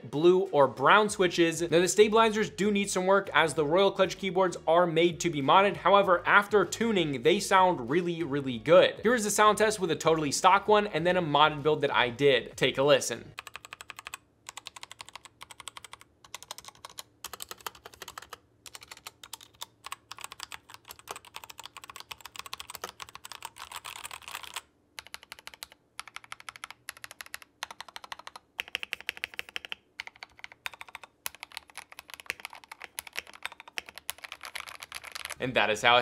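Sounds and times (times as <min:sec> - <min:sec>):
mechanical keyboard keystrokes clacking: 0:13.4 - 0:35.4.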